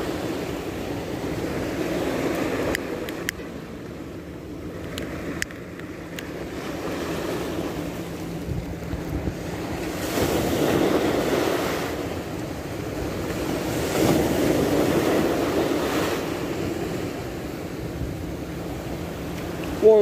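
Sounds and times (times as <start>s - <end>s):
small sea waves breaking: 0.0s - 20.0s
wind buffeting microphone: 4.2s - 19.9s.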